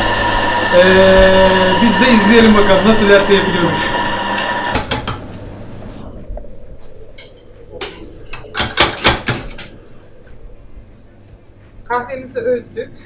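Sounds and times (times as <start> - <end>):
coffee grinder hiss: 0.0 - 5.1.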